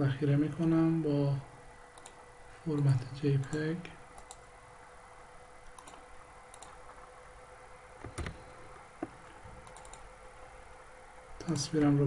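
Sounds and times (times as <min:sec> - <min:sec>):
steady background hum: 0:00.0 - 0:12.0
computer mouse clicking: 0:02.0 - 0:02.9, 0:04.2 - 0:04.5, 0:05.6 - 0:07.0, 0:09.0 - 0:10.1.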